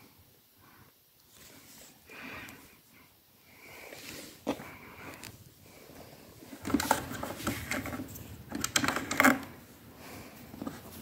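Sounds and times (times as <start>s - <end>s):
plastic clicks and rustles: 6.5s - 9.6s.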